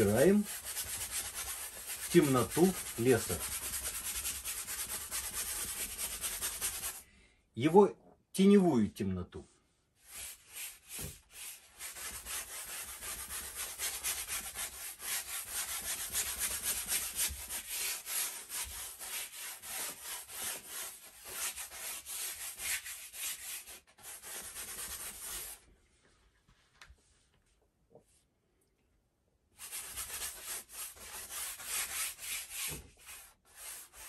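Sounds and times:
brush scrubbing on canvas: 0.0s - 7.0s, 10.0s - 25.6s, 29.6s - 34.0s.

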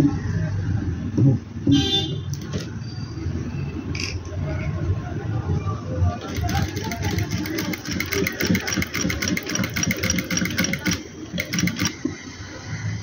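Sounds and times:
sewing machine stitching: 6.2s - 12.1s.

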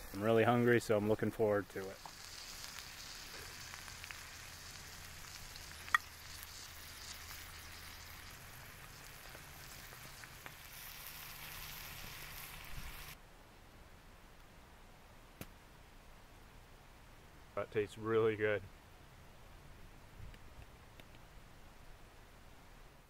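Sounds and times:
food sizzling in a pan: 0.0s - 13.2s.

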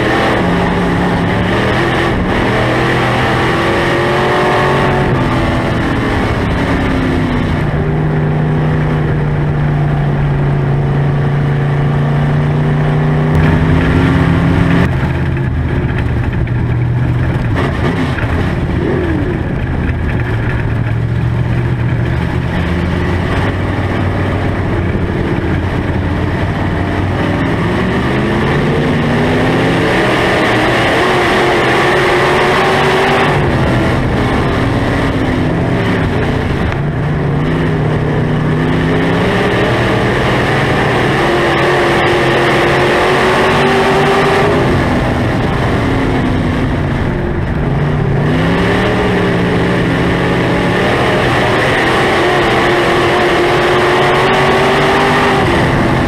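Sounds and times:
race car engine under load: 0.0s - 56.0s.

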